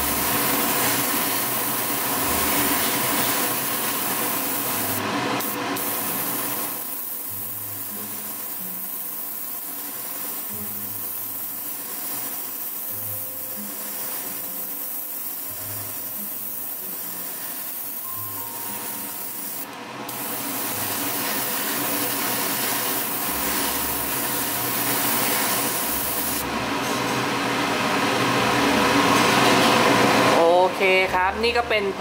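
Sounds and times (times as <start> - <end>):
airbrush spraying hiss: 0.0 - 26.4.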